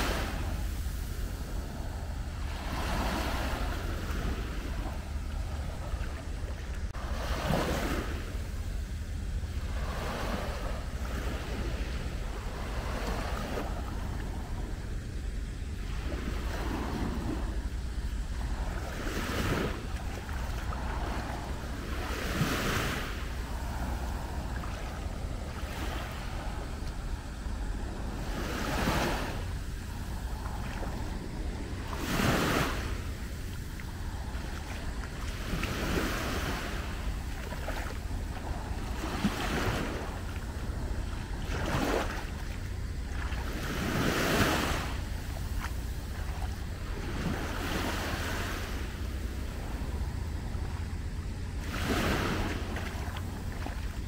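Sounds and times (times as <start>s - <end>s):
small waves breaking on beach: 0.0s - 54.0s
wind rumble on microphone: 0.0s - 54.0s.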